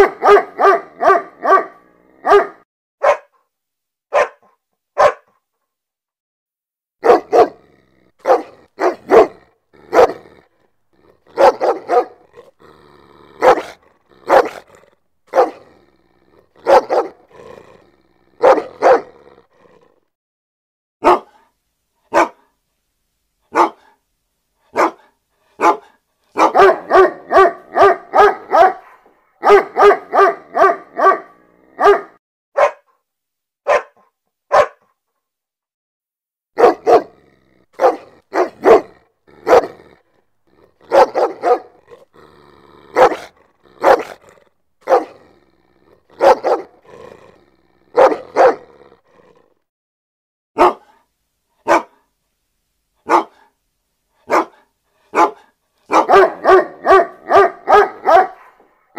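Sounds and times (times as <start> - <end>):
dog barking: 0.0 - 3.4, 4.1 - 5.4, 7.0 - 10.4, 11.3 - 12.5, 13.4 - 15.8, 16.6 - 17.4, 18.4 - 19.2, 21.0 - 21.5, 22.1 - 22.5, 23.5 - 24.0, 24.7 - 33.0, 33.6 - 35.0, 36.6 - 37.2, 37.8 - 40.0, 40.7 - 42.1, 42.9 - 45.3, 46.0 - 47.1, 47.9 - 48.8, 50.6 - 52.1, 53.0 - 53.5, 54.2 - 58.9.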